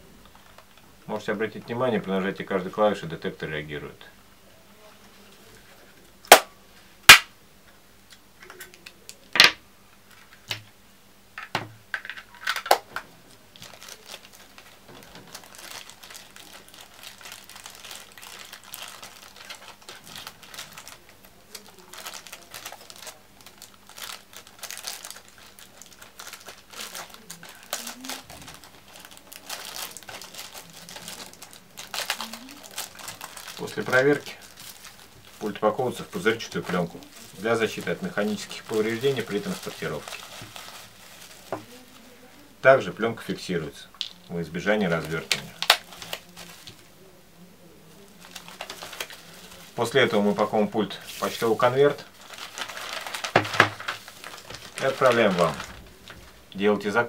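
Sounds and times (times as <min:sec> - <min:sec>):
bubble wrap crinkling: 0:12.0 - 0:42.5, 0:43.2 - 0:47.2, 0:47.9 - 0:57.0.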